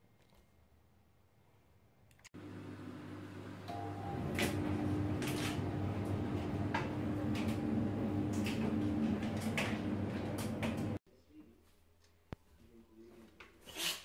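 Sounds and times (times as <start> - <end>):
laundry machine hum: 2.4 - 11.0.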